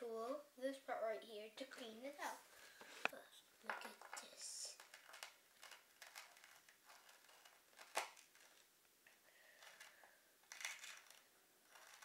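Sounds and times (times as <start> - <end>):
metal tool scraping grip tape: 10.5 - 12.0.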